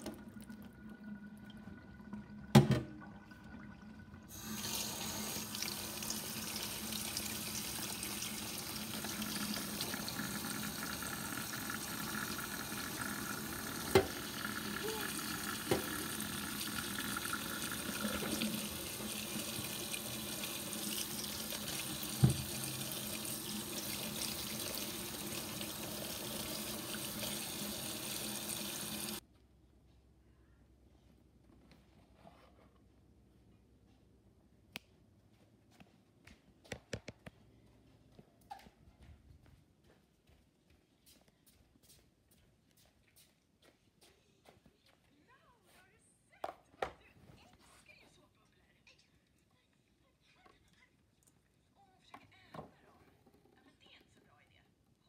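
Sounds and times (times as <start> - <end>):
tap water running into colander: 0.0 - 29.2.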